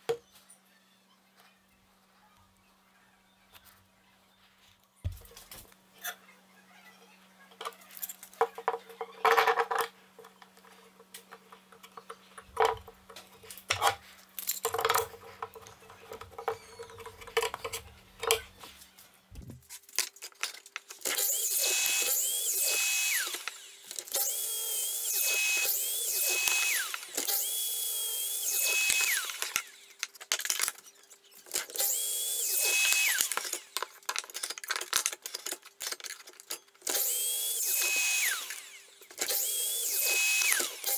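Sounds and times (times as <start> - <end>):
wooden pieces clicking and knocking: 7.6 - 18.6, 28.7 - 31.8, 32.6 - 37.1
miter saw cutting board: 21.0 - 30.0, 31.6 - 33.9, 36.9 - 40.9.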